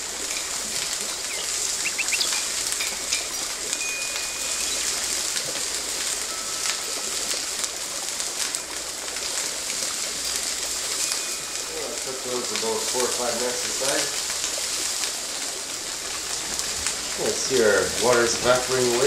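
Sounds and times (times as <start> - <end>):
food sizzling and crackling: 0.0 - 19.0.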